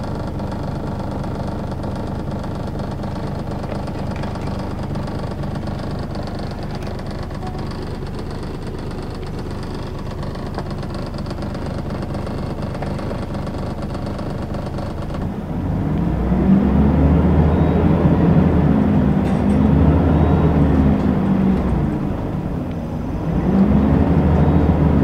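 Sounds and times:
bus diesel engine running: 0.0 - 25.0.

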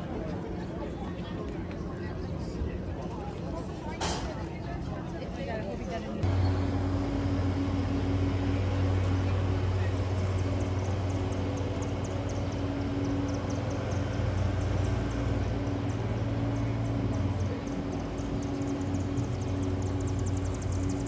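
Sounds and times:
low engine drone: 6.2 - 21.0.

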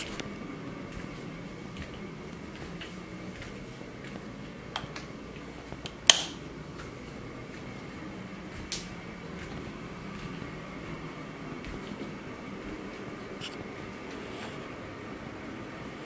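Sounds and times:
air conditioner humming: 0.0 - 16.0
light switch click: 6.1 - 6.4.

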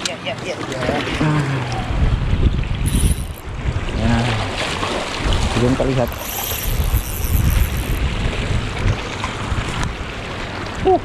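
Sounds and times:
sea wash: 0.0 - 11.0
wind buffeting microphone: 1.8 - 4.4, 6.7 - 10.1.

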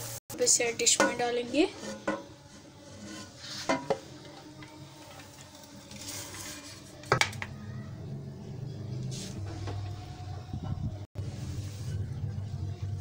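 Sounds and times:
metal ladle scraping pot: 0.8 - 4.2, 5.0 - 7.1.

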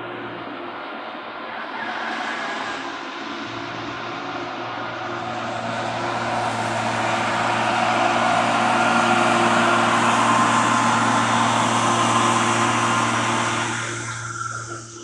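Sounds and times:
crop sprayer engine running: 4.3 - 15.0.

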